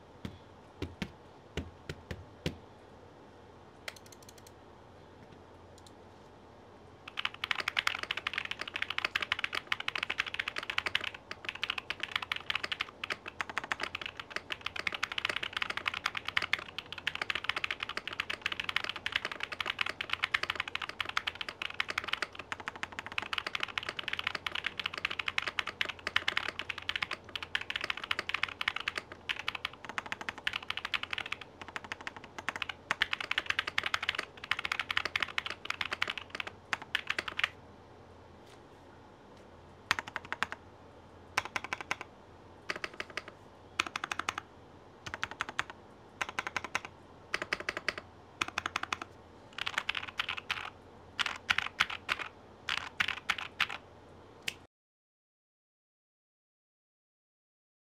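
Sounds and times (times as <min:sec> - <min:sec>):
mechanical keyboard typing: 0:07.1 - 0:37.6, 0:39.9 - 0:40.6, 0:41.4 - 0:42.1, 0:42.7 - 0:44.4, 0:45.0 - 0:53.8.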